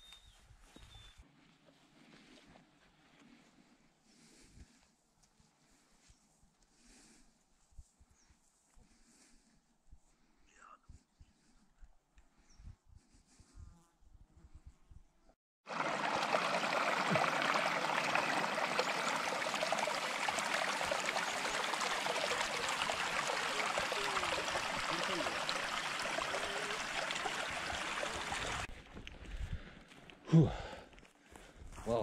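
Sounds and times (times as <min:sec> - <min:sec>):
brook rushing over stones: 0:15.7 - 0:28.7.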